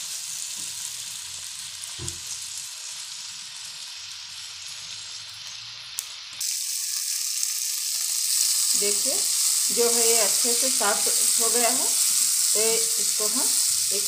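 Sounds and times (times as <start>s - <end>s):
onions sizzling in oil: 0.0s - 14.0s
single knock: 2.0s - 2.2s.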